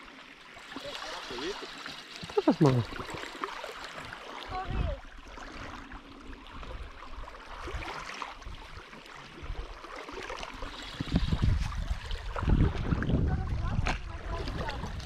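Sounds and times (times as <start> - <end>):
water washing: 0.6 - 5.9, 9.6 - 15.0.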